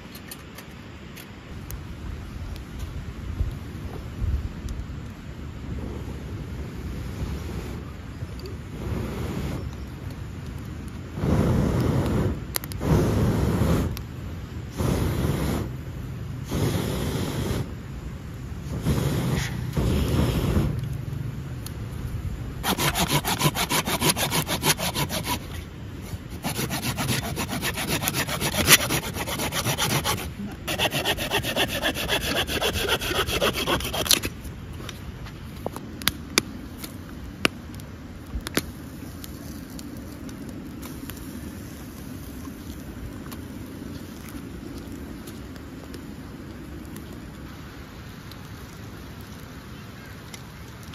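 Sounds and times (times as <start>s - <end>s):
hand saw cutting a log: 22.6s - 25.6s, 26.3s - 34.3s.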